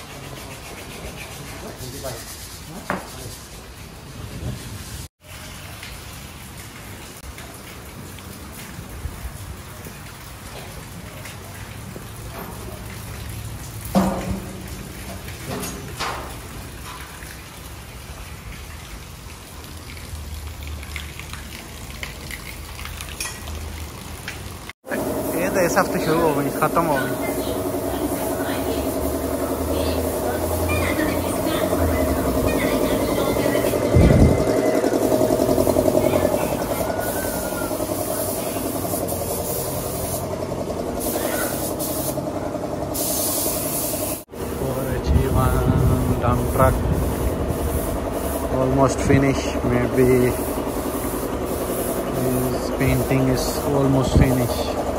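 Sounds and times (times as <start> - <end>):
steady rain hiss: 1.7 - 33.9, 35.3 - 54.9
machine running with pulsing beat: 26.6 - 38.9.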